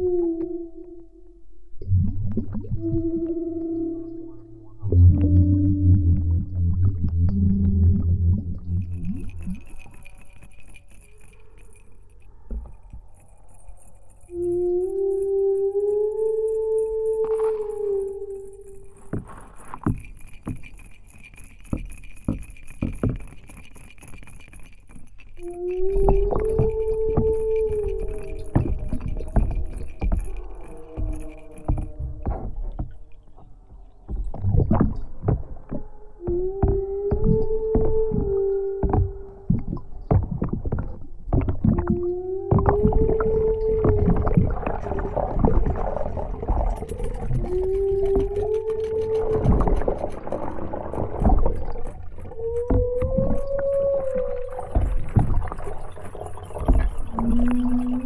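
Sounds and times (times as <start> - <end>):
underwater clicks and knocks: 1.7 - 58.0
synthesizer tone: 1.8 - 9.6.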